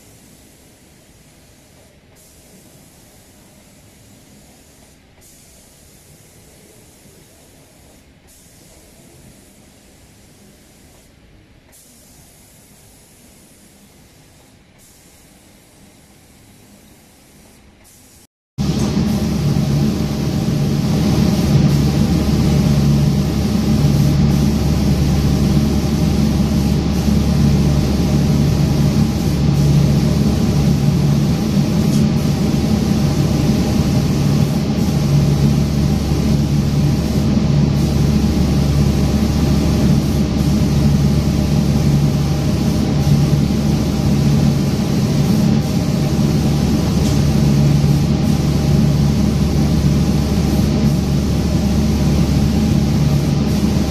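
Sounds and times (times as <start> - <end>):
spray hiss: 0.0 - 53.9
spraying machine motor hum: 18.6 - 53.9.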